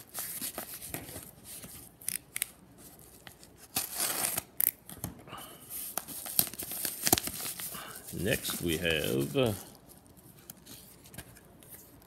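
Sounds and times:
paper mailer crinkling and tearing: 0:06.2 - 0:09.8.

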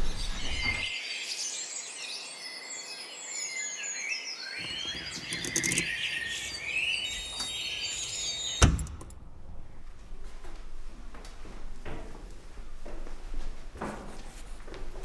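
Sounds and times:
songbirds chirping and singing: 0:00.0 - 0:08.9.

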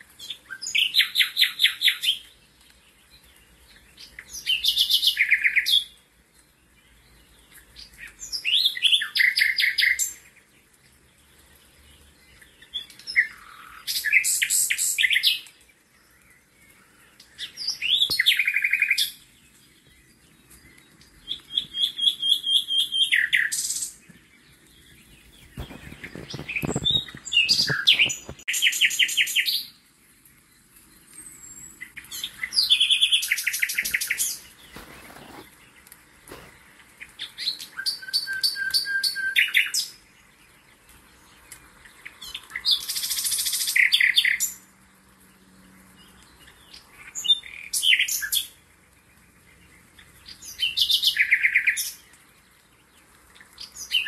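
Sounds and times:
songbird trilling: 0:21.2 - 0:24.0, 0:24.8 - 0:29.7, 0:31.2 - 0:35.4.

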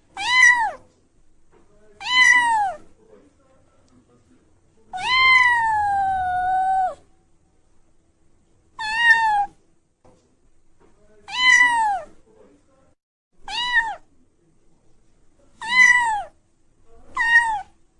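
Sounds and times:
kitten meowing: 0:00.2 - 0:00.8, 0:02.0 - 0:02.8, 0:05.0 - 0:07.0, 0:08.8 - 0:09.6, 0:11.3 - 0:12.1, 0:13.4 - 0:14.1, 0:15.6 - 0:16.4, 0:17.1 - 0:17.8.

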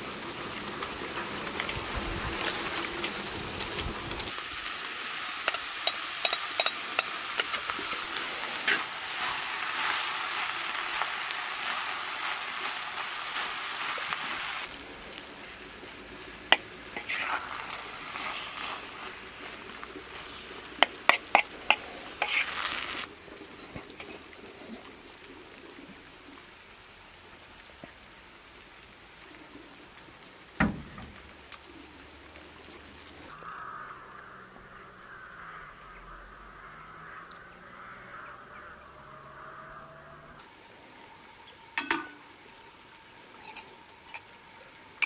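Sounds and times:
spatula scraping a pan: 0:17.0 - 0:19.1, 0:20.8 - 0:23.1
thump: 0:30.6 - 0:31.2.

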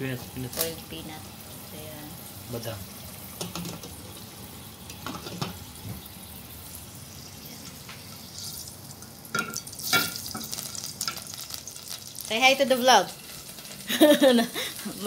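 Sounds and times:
oil sizzling in a frying pan: 0:00.0 - 0:15.0
water boiling in a pot: 0:00.0 - 0:15.0
glass lid clinking: 0:09.3 - 0:10.5.

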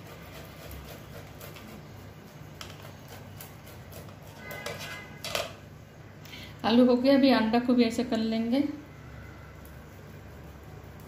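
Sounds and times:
potato scraping on metal grater: 0:00.0 - 0:05.4.

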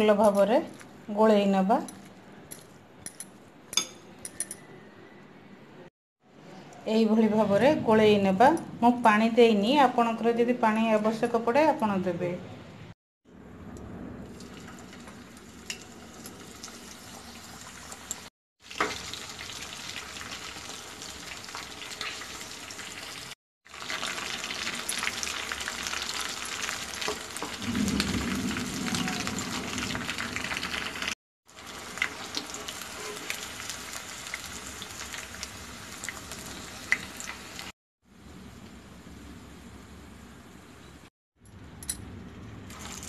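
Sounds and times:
fritters sizzling in hot oil: 0:14.3 - 0:27.7, 0:28.6 - 0:37.8.

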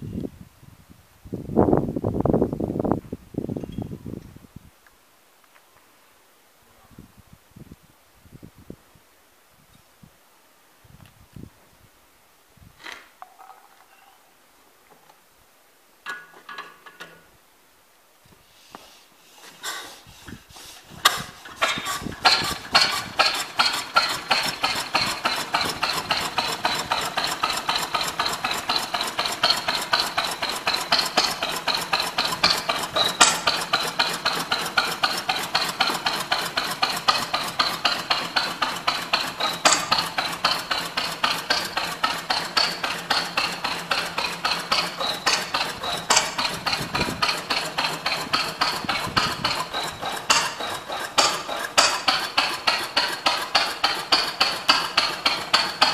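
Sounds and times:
stationary engine metallic clatter: 0:21.0 - 0:55.9.

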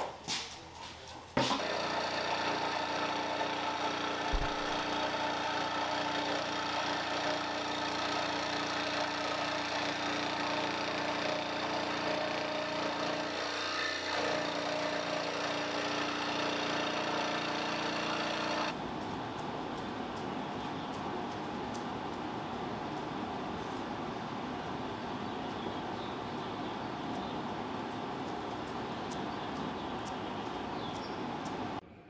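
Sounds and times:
scroll saw cutting plywood: 0:01.4 - 0:18.8.

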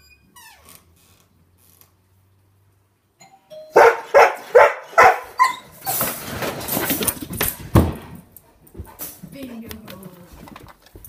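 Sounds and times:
faint two-note doorbell chime: 0:03.2 - 0:04.2
dog barking loudly: 0:03.8 - 0:05.8
wire crate rattling: 0:05.0 - 0:08.1.

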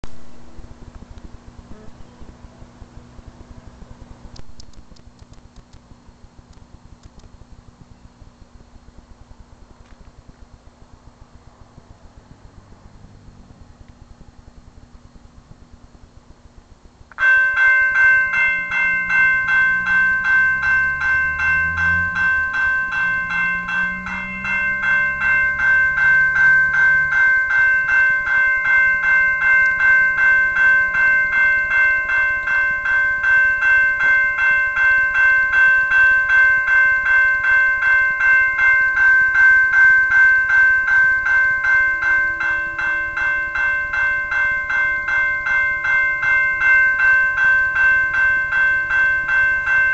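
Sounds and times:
level crossing warning bell: 0:16.5 - 0:49.9.

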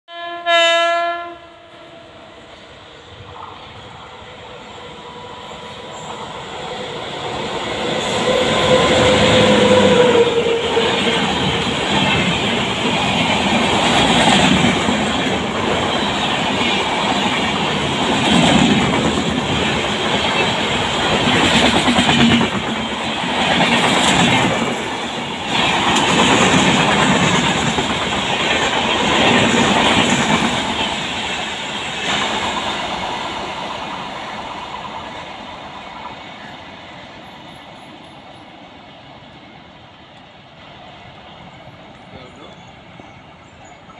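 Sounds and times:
locomotive horn: 0:00.1 - 0:02.3
train wheels rushing on rail: 0:01.2 - 0:43.9
clickety-clack over rail joints: 0:07.6 - 0:38.7.

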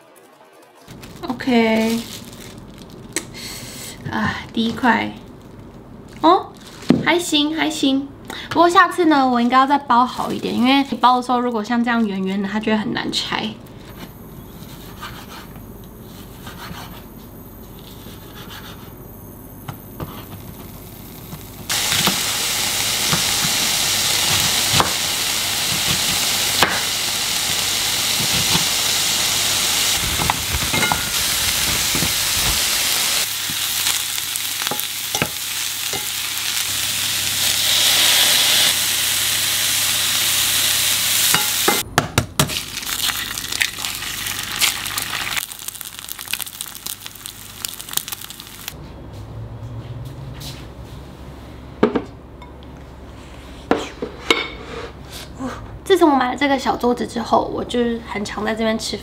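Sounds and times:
vegetables and bacon sizzling in a pan: 0:20.1 - 0:41.8, 0:42.5 - 0:48.8.

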